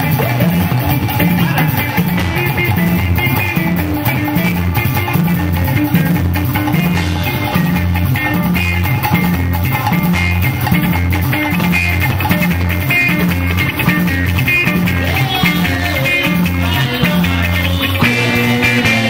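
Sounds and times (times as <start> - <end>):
drums: 0.0 - 19.0
electric guitar melody: 0.0 - 19.0
repeating bass line: 0.0 - 19.0.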